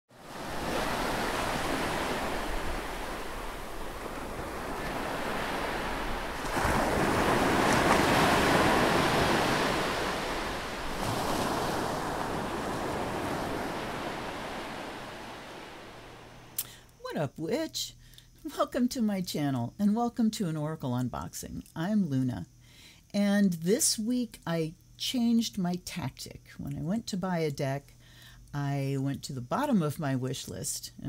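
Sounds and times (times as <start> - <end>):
ocean waves washing on shore: 0.1 - 16.6.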